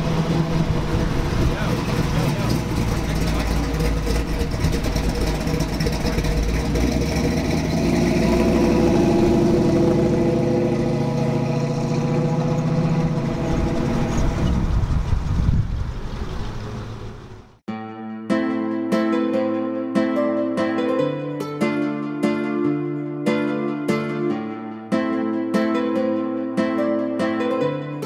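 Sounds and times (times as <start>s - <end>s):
car engine running at low speed: 0.0s - 17.6s.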